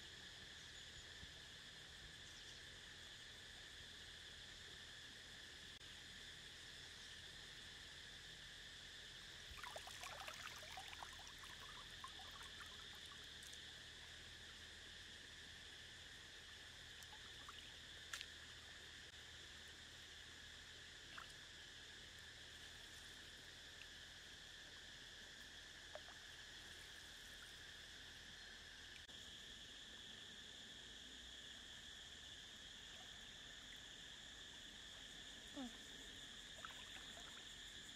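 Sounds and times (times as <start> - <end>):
insects droning: 0.0 - 37.9
water splashing and trickling: 9.5 - 14.1, 36.6 - 37.9.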